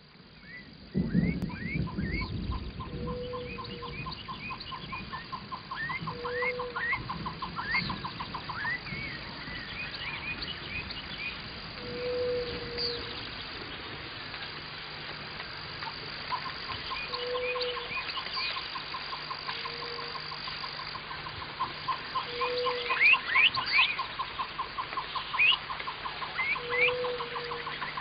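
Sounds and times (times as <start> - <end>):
faint steady hum: 0.0 - 28.0
sweeping bird chirps: 16.3 - 20.9, 21.9 - 28.0.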